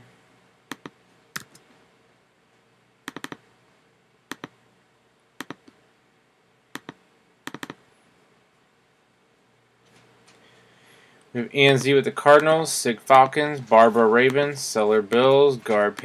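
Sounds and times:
computer mouse and keyboard clicks: 0:00.7 - 0:01.6, 0:03.1 - 0:03.4, 0:04.3 - 0:04.6, 0:05.4 - 0:05.8, 0:06.8 - 0:07.8.

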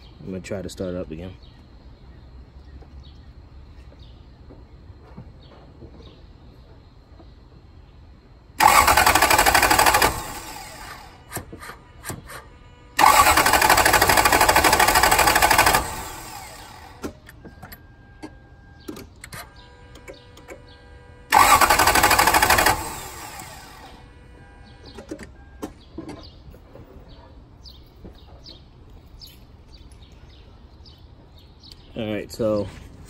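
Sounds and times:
car engine cranking on starter: 0:08.6 - 0:26.3.

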